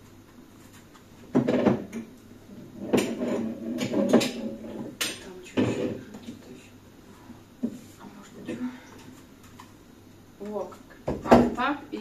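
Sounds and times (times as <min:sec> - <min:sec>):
knocks and clatter in cupboard: 0:01.3 - 0:02.0, 0:02.9 - 0:05.0.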